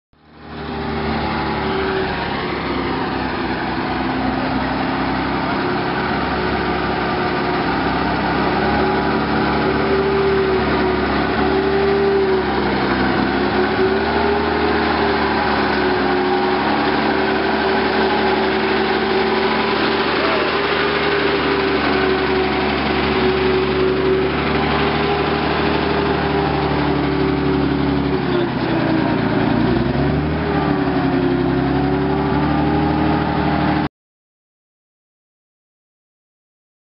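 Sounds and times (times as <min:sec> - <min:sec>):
tractor engine running: 0:00.2 - 0:33.9.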